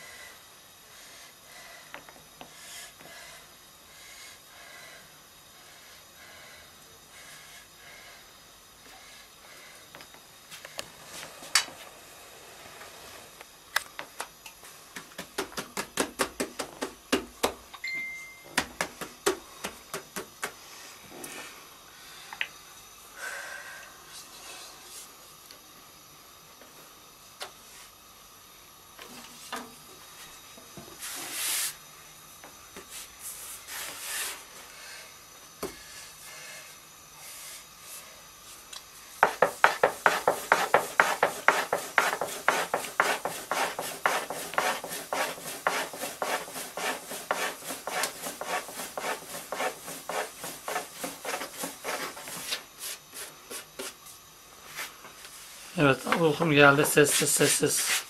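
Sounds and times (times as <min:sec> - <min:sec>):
rolling pin tapping on wooden board: 0:39.2 - 0:51.8.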